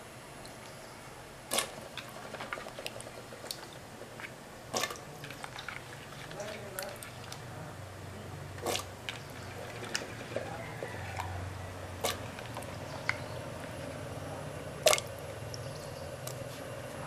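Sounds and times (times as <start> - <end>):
low steady hum: 0.0 - 17.0
vegetables splashing into liquid: 1.5 - 3.7, 4.7 - 7.4, 8.6 - 10.1.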